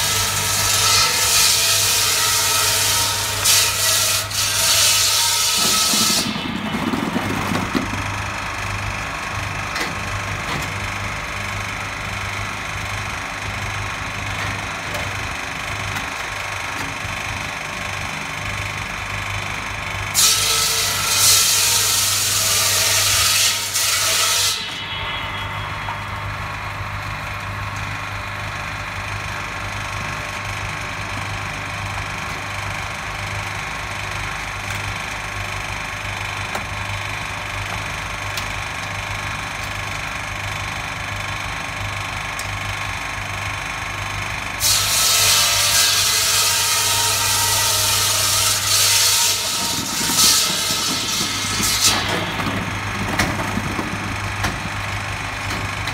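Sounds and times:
saw blades cutting through ice: 0:00.0 - 0:07.4, 0:44.8 - 0:52.1.

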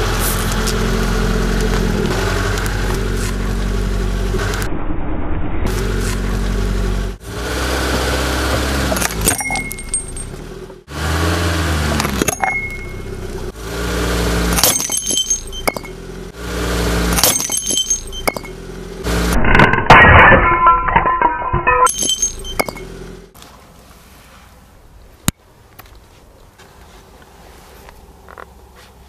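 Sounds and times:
car engine running low: 0:00.0 - 0:19.7, 0:21.9 - 0:23.4.

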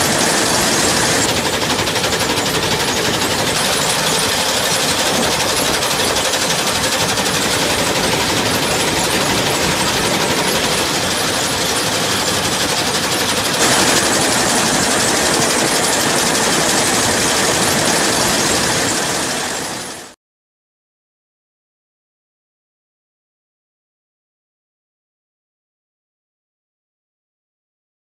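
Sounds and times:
combine harvester mechanical clatter: 0:00.0 - 0:20.1.

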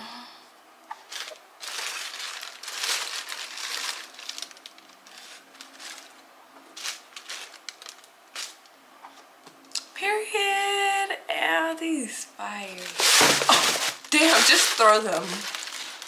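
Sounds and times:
wrapping paper crinkling: 0:00.9 - 0:08.7, 0:12.7 - 0:16.0.

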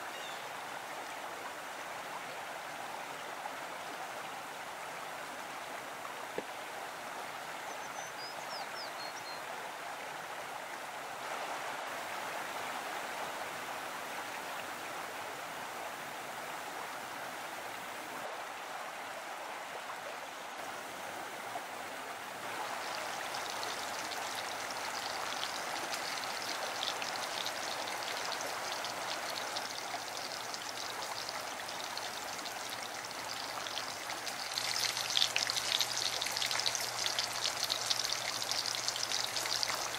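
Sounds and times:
mountain stream rushing: 0:00.0 - 0:39.9
onion rings frying in oil: 0:22.6 - 0:39.9.

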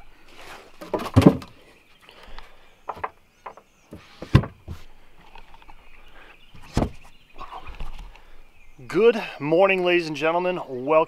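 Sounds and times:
hatch lids knocking and thudding: 0:00.8 - 0:01.6, 0:02.9 - 0:04.8, 0:06.6 - 0:07.1.

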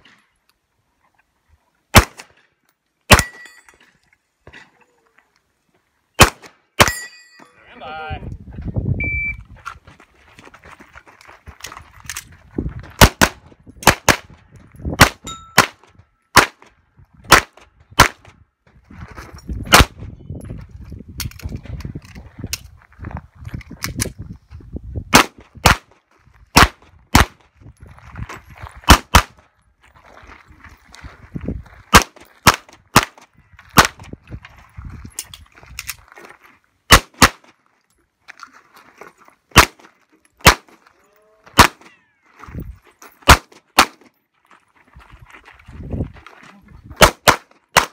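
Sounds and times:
pistol shots: 0:01.9 - 0:02.3, 0:03.1 - 0:03.5, 0:06.2 - 0:07.1, 0:13.0 - 0:14.3, 0:15.0 - 0:15.8, 0:16.4 - 0:16.7, 0:17.3 - 0:18.3, 0:19.7 - 0:20.0, 0:25.1 - 0:25.9, 0:26.6 - 0:27.4, 0:28.9 - 0:29.4, 0:31.9 - 0:33.2, 0:36.9 - 0:37.5, 0:39.6 - 0:39.8, 0:40.4 - 0:40.8, 0:41.6 - 0:41.9, 0:43.2 - 0:44.0, 0:47.0 - 0:47.9.

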